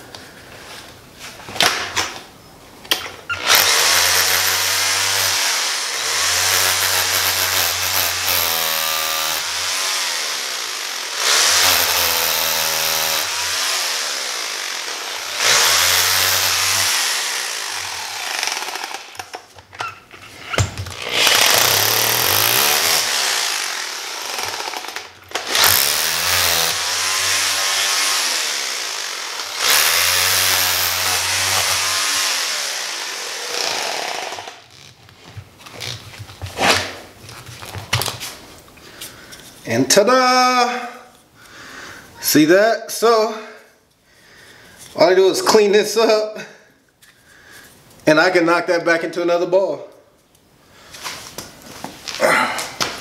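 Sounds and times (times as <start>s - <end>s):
electric drill boring: 3.3s - 19.5s, 20.8s - 35.0s.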